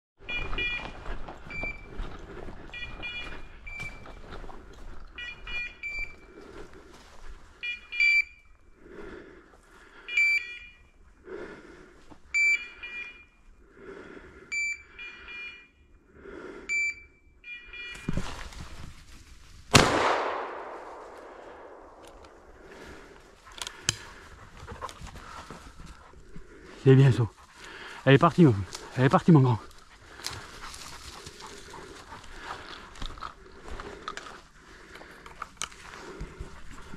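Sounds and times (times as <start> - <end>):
electronic collar beeps: 0.2 - 2.0, 2.7 - 4.2, 5.1 - 6.3, 7.6 - 8.5, 10.1 - 10.9, 12.3 - 13.4, 14.5 - 15.8, 16.7 - 18.2
rustling through undergrowth: 0.3 - 5.5, 18.0 - 36.9
shotgun shot echoing: 19.7 - 22.1.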